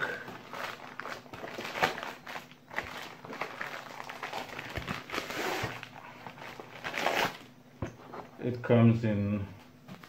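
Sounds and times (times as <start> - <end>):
plastic mailer crinkling: 0.0 - 7.5.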